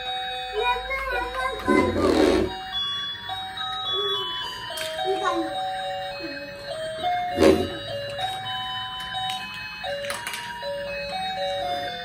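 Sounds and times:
electronic beeping toy tune: 0:01.1 - 0:08.4
plastic toy pieces clicking: 0:09.0 - 0:10.6.

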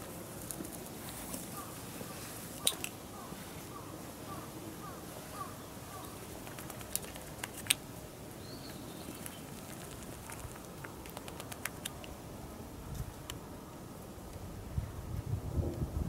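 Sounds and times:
sharp short clicks: 0:09.1 - 0:12.2.

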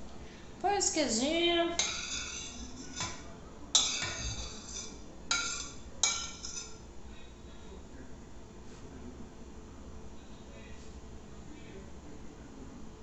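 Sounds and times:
cheese scraped into frying pan: 0:01.8 - 0:03.2, 0:03.8 - 0:06.8
metal spoon clinking on plate: 0:01.8 - 0:06.8.

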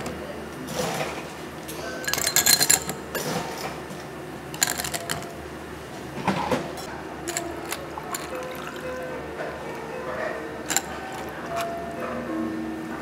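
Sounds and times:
ice and scoop clinks: 0:02.0 - 0:03.3, 0:04.6 - 0:05.4, 0:07.2 - 0:09.1, 0:10.6 - 0:11.7
ice cubes clattering into glass: 0:02.0 - 0:03.3, 0:04.6 - 0:05.4, 0:07.2 - 0:09.1, 0:10.6 - 0:11.7.

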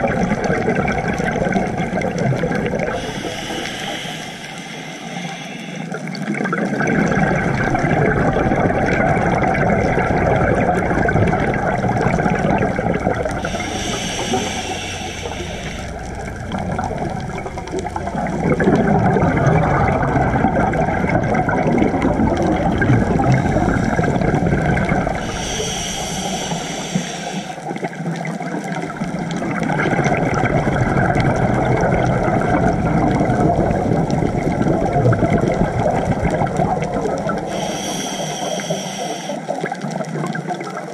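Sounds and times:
underwater exhaled bubbles: 0:00.0 - 0:40.9
regulator hissing breaths: 0:02.8 - 0:06.1, 0:13.2 - 0:18.2, 0:23.2 - 0:24.3, 0:25.0 - 0:27.8, 0:37.4 - 0:39.6.

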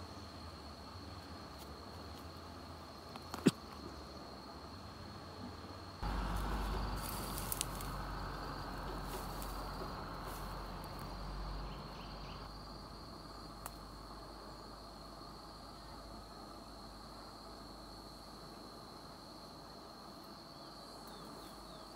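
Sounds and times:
cricket chirping: 0:00.0 - 0:21.9
low rumbling noise: 0:06.0 - 0:13.4.

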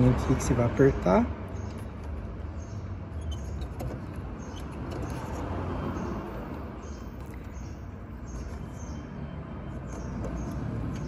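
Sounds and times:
faint high squeaks: 0:03.1 - 0:05.5.

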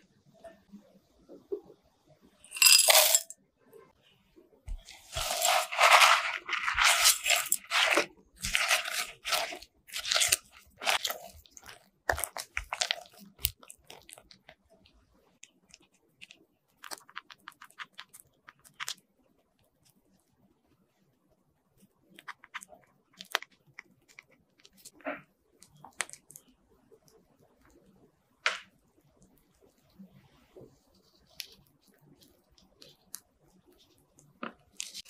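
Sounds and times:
crumbs tipped into a glass bowl: 0:02.6 - 0:03.3, 0:04.7 - 0:13.6
spatula scraping crunchy mixture: 0:04.7 - 0:14.4.

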